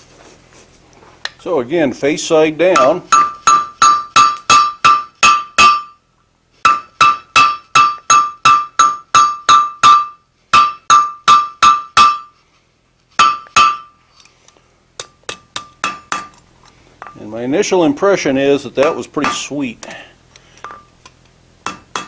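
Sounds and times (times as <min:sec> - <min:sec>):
hammer striking hot iron on anvil: 0:02.7 - 0:06.0, 0:06.6 - 0:12.3, 0:13.2 - 0:14.0, 0:15.0 - 0:16.4, 0:18.8 - 0:19.6, 0:20.6 - 0:20.9, 0:21.6 - 0:22.0.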